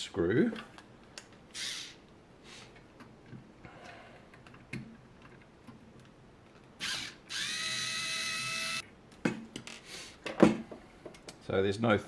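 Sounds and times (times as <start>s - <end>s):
electric screwdriver motor whine: 1.6s - 2.0s, 6.8s - 8.8s.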